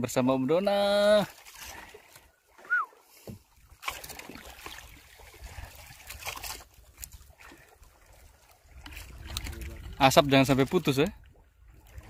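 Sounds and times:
water lapping against boat: 0.5 - 12.0
wind on microphone: 8.7 - 10.5.

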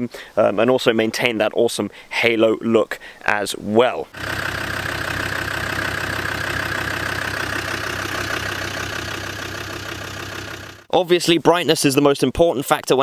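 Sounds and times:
diesel engine running: 4.1 - 10.9.

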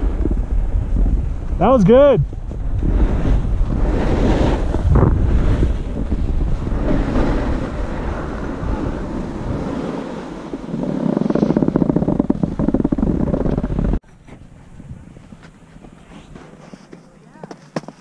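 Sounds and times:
snowboards sliding on snow: 0.0 - 14.0
wind buffeting microphone: 0.0 - 16.7.

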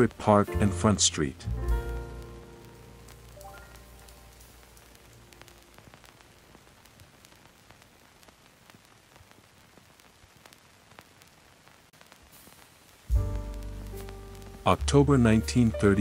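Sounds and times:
faint background music: 0.0 - 6.7, 13.1 - 16.0
static hiss with crackles: 0.0 - 16.0.

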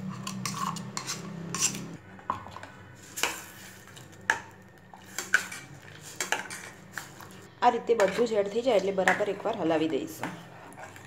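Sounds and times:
steel ladle scraping a pot: 0.0 - 4.1, 4.9 - 7.4, 9.2 - 11.0.

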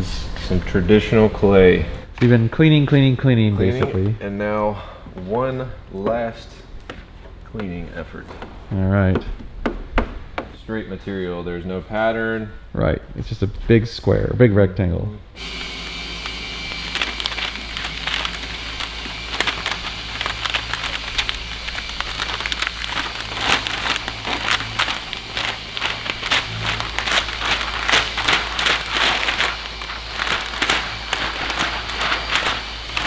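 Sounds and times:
steady low hum: 0.0 - 33.0
plastic film crinkling: 15.4 - 33.0.

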